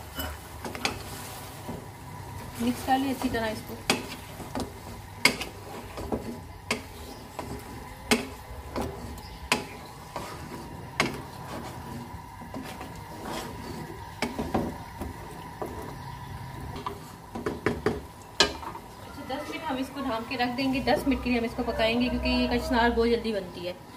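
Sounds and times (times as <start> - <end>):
spatula scraping wok: 0.0 - 18.8.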